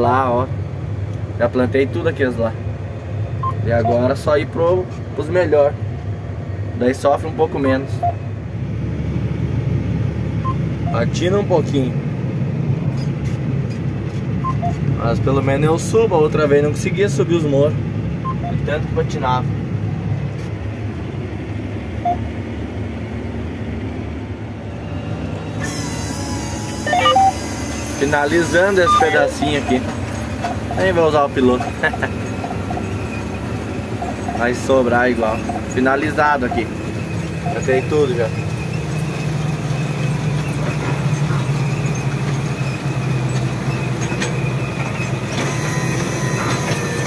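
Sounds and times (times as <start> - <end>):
short electronic beep: 14.4 - 14.8, 18.3 - 18.6, 26.8 - 27.4, 28.6 - 29.8
tractor diesel engine running: 19.5 - 47.0.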